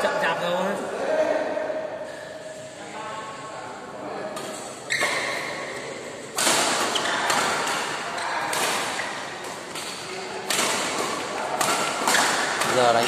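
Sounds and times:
racket striking shuttlecock: 6.3s - 12.8s.

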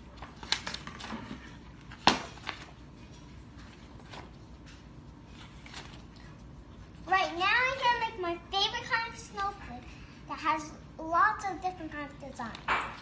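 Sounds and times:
paper rustling: 0.0s - 7.9s.

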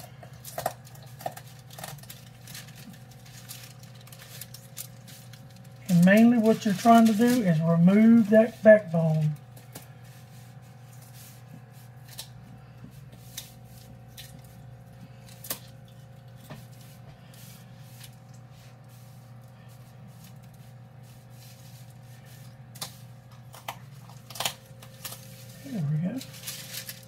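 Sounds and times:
steady low hum: 0.0s - 27.0s
bone cracking: 22.8s - 25.2s.

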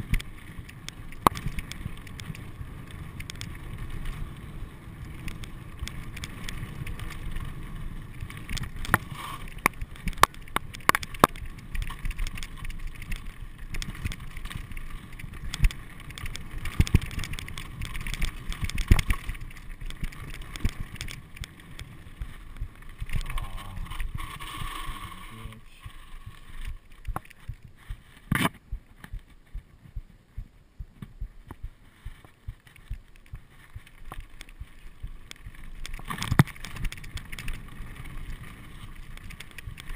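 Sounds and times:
bike rattling and knocking: 0.0s - 25.2s, 26.2s - 39.9s
tyres crunching on gravel: 0.0s - 29.1s.

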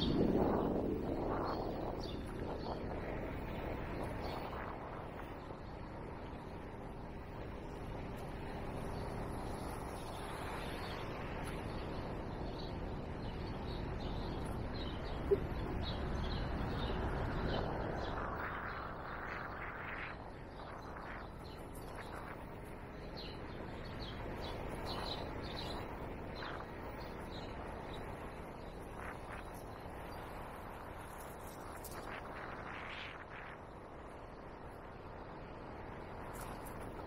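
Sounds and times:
small birds chirping: 8.4s - 33.6s.

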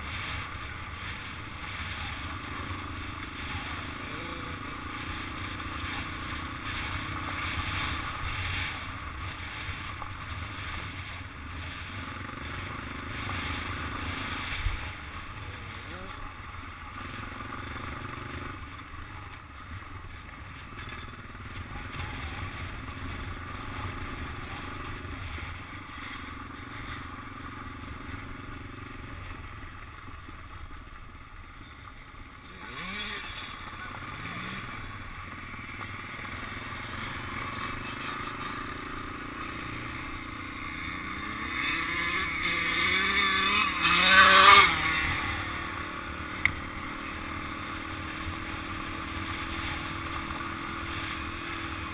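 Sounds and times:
dirt bike engine revving: 0.0s - 19.0s, 32.3s - 51.9s.

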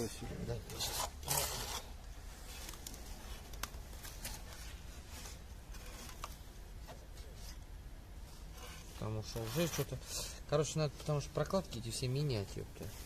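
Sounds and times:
rag rubbing on plastic: 0.7s - 2.0s.

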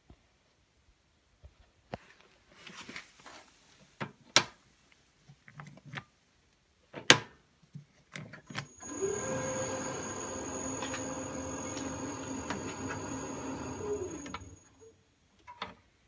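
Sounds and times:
lathe motor humming and whining: 8.6s - 14.9s.

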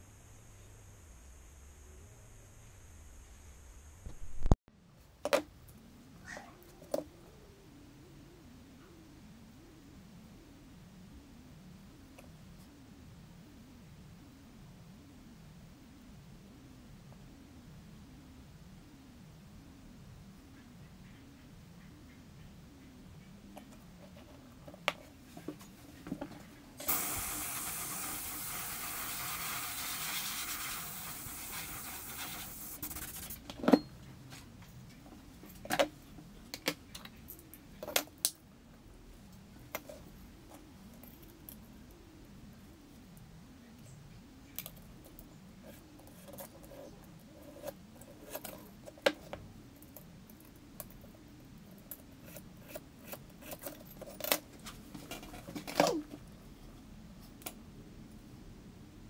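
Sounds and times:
steady hiss: 0.0s - 4.6s, 25.0s - 33.7s.

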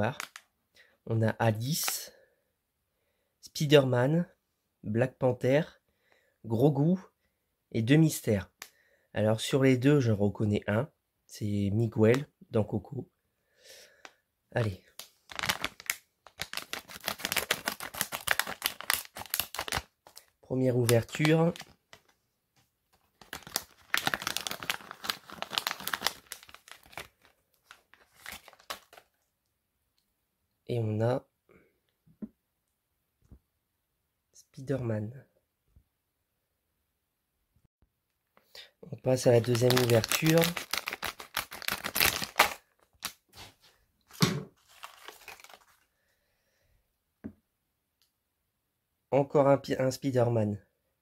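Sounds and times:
foil packet crinkling and tearing: 0.1s - 0.4s, 14.9s - 22.2s, 22.9s - 29.2s, 39.2s - 43.2s, 44.6s - 45.9s
thump: 44.2s - 44.5s.

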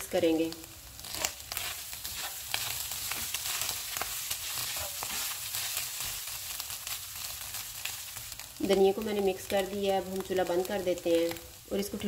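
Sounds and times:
meat sizzling in a wok: 0.0s - 12.0s
spatula scraping a pan: 1.0s - 6.3s.

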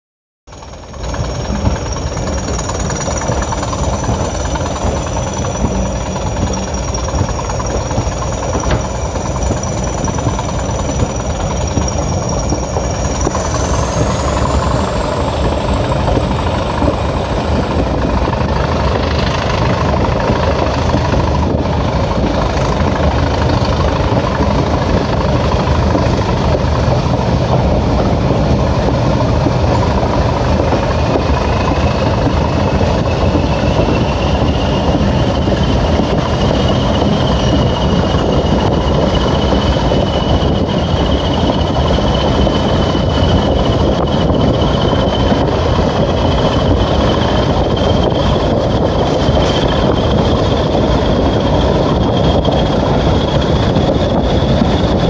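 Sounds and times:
diesel locomotive engines running: 0.5s - 55.0s
thin high whine: 0.5s - 55.0s
train rushing on rails: 0.5s - 55.0s.

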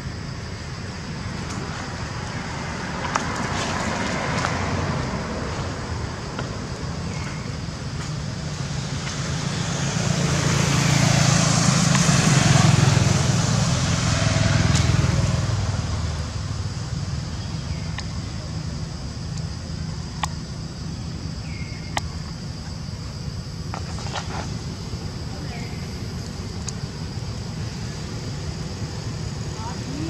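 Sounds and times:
road vehicle passing by: 1.8s - 17.9s.

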